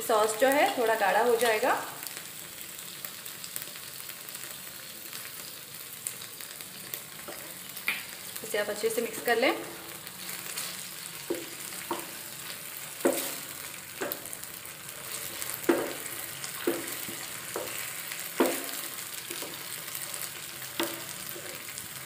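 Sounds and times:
sauce sizzling in a frying pan: 0:00.0 - 0:22.0
wooden spatula scraping a pan: 0:10.4 - 0:14.3.

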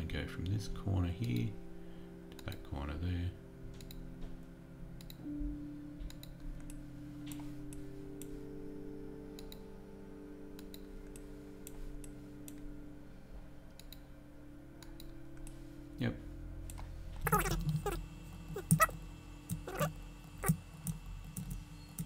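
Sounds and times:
steady low hum: 0:00.0 - 0:22.0
computer mouse clicking: 0:13.8 - 0:14.0.

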